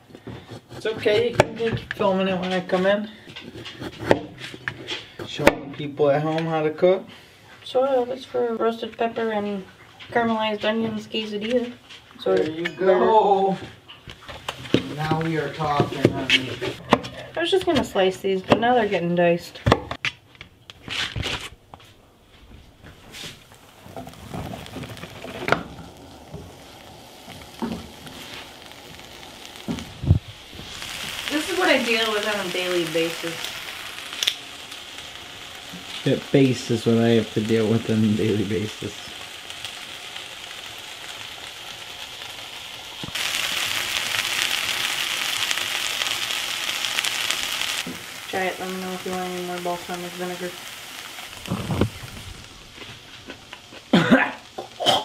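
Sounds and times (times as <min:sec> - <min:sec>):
pan sizzling: 0:00.0 - 0:55.0
food scraped off cutting board: 0:20.8 - 0:21.6.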